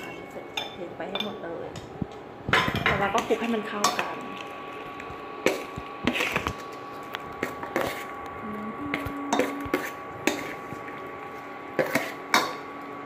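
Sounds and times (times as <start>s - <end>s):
metal spoon scraping metal bowl: 7.4s - 8.2s, 8.9s - 12.7s.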